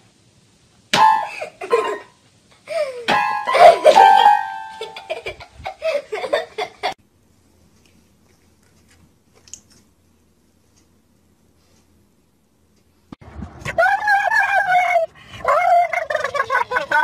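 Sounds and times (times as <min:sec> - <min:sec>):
person giggling: 0:02.7 - 0:07.0
toy keyboard note: 0:03.2 - 0:05.1.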